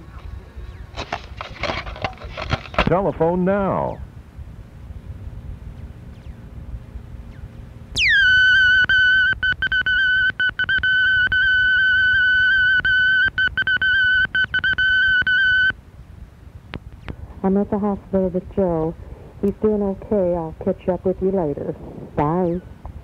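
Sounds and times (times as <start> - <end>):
faint hum: 0.0 - 23.0
answering machine beep: 8.0 - 15.8.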